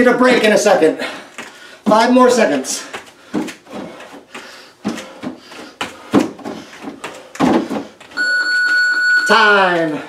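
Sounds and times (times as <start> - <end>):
bare feet thudding on a step: 2.8 - 8.2.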